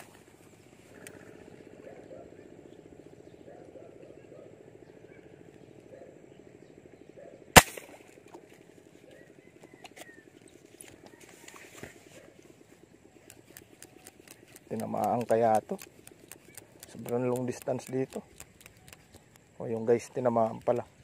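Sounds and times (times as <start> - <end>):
air rifle shot: 7.6 - 8.1.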